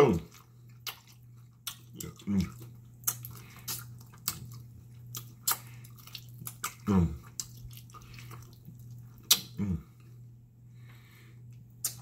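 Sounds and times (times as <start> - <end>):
wet chewing and sucking: 0.2 - 9.6
lip-smacking clicks: 9.2 - 9.6.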